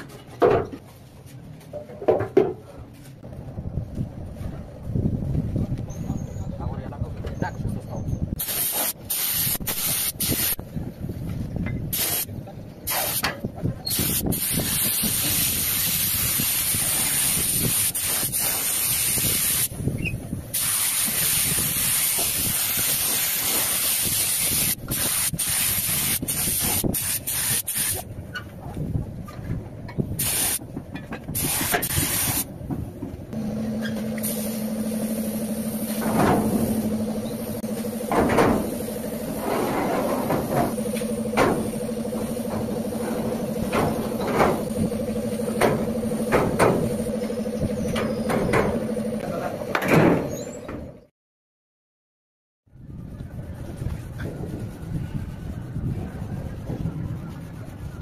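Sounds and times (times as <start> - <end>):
paint spray gun hissing: 8.4 - 10.6, 12.9 - 13.2, 13.9 - 19.8, 20.6 - 28.0, 30.2 - 30.6, 31.4 - 32.5, 33.4 - 39.4, 40.7 - 47.5
steady hum: 33.2 - 50.2.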